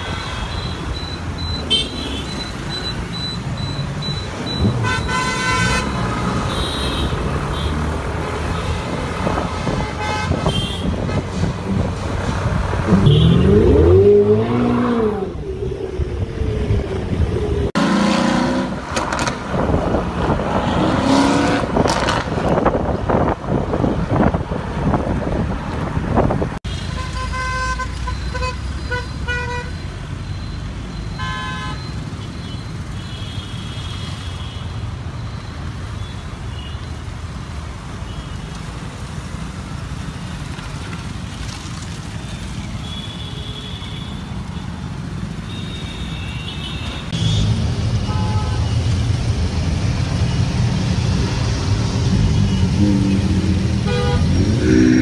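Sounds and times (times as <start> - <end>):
road traffic: 0.0 - 55.0
car horns honking: 4.6 - 7.8, 9.6 - 11.2, 12.9 - 15.0, 31.1 - 34.6, 45.4 - 48.8, 52.4 - 55.0.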